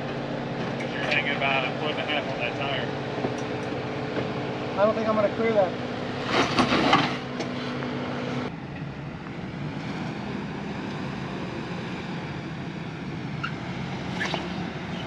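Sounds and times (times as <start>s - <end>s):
engine running at low revs: 0.0s - 15.0s.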